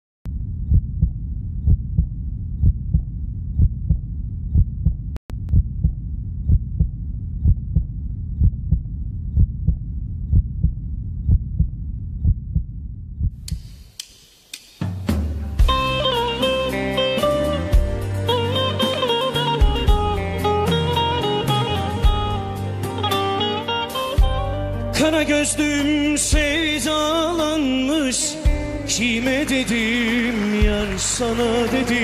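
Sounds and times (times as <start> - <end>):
heartbeat thumps: 0.3 - 13.8, 19.6 - 20.4, 22.0 - 22.5, 24.2 - 24.6, 26.3 - 26.8, 28.5 - 29.1.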